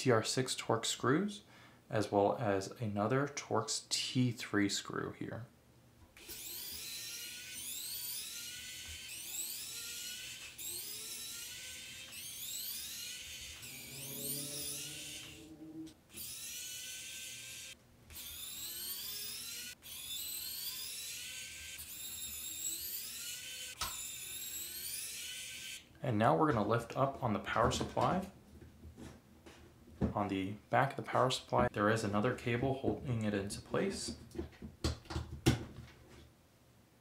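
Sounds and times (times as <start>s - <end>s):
electric screwdriver motor whirring: 6.2s - 25.8s.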